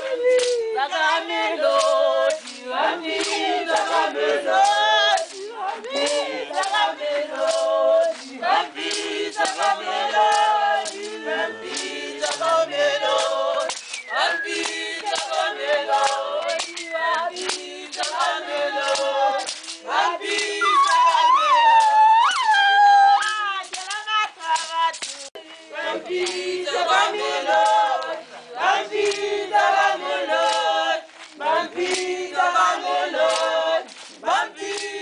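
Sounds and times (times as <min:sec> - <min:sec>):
choir singing: 0:00.0 - 0:24.5, 0:25.3 - 0:35.0
sharp percussive beats: 0:00.0 - 0:35.0.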